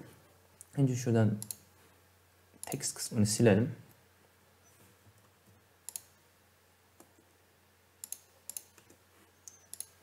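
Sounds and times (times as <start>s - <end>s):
computer mouse clicks: 1.4s - 1.6s, 5.2s - 6.2s, 8.0s - 10.0s.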